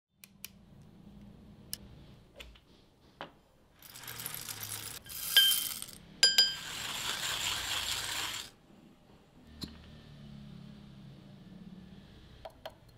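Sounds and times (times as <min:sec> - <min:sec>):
coffee beans rattling into grinder: 0:03.8 - 0:08.6.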